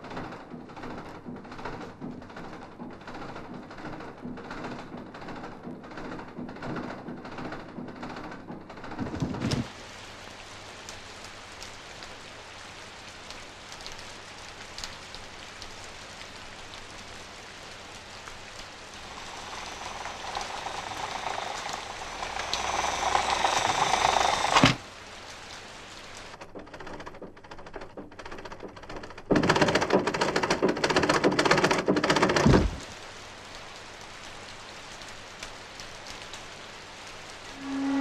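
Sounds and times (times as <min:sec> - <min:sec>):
rain hissing: 0:08.9 - 0:27.0, 0:31.2 - 0:38.0
scattered clicks: 0:19.0 - 0:24.8.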